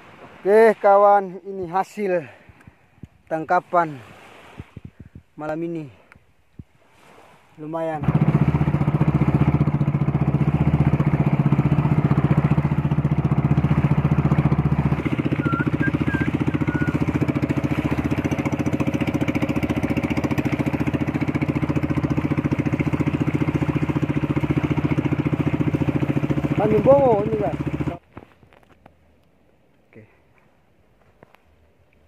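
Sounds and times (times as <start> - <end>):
boat engine throbbing: 7.9 - 28.1
high chirps: 15.3 - 17.1.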